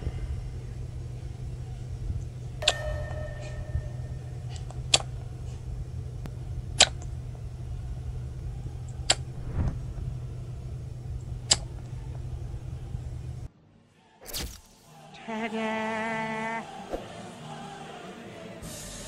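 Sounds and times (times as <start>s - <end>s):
steady low hum: 0.0s - 13.5s.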